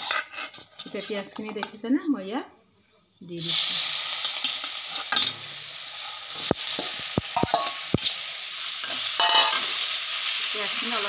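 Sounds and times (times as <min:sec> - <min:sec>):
onions sizzling in hot oil: 0:03.3 - 0:11.0
metal clinks against pan: 0:07.4 - 0:07.9, 0:09.2 - 0:09.7.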